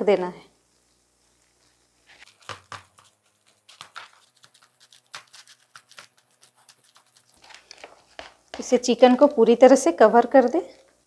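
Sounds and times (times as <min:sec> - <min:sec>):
soft pats of dough: 0:00.6 - 0:05.3
leaves crinkling: 0:00.7 - 0:08.2.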